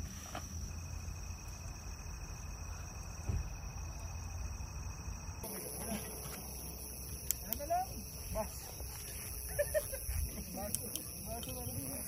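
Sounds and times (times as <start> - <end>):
insects calling: 0.0 - 12.0
dull thump: 3.2 - 3.6.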